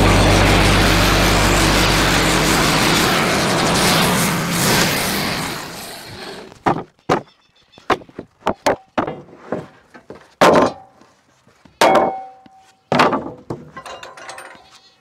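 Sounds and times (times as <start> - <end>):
wooden boards knocking on steel: 11.8 - 14.0.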